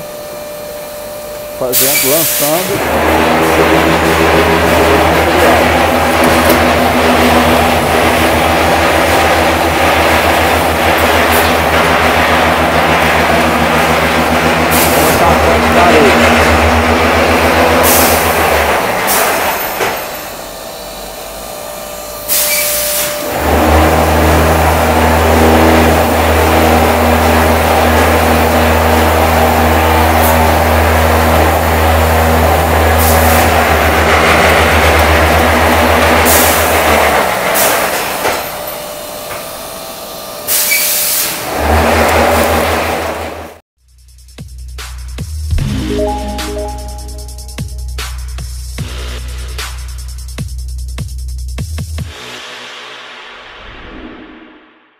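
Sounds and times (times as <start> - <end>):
machinery low vibrating hum: 0.0 - 18.8.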